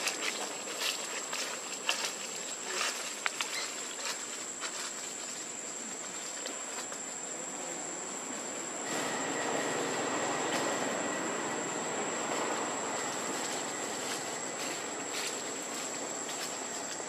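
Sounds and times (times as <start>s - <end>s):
dry leaves crackling and rustling: 0.0s - 7.5s, 8.4s - 17.0s
high-pitched insect drone: 7.9s - 17.0s.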